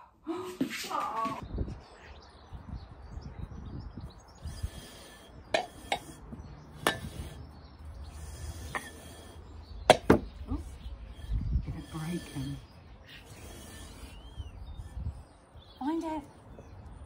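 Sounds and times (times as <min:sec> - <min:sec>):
flower pots clinking together: 0:05.5 - 0:07.4.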